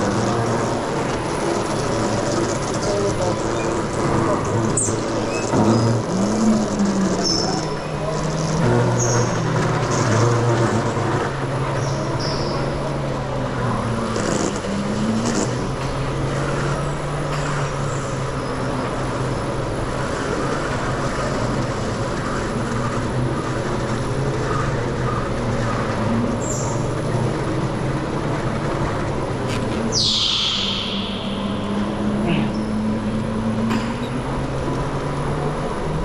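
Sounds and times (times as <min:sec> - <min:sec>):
tyres squealing: 0:00.0 - 0:12.8.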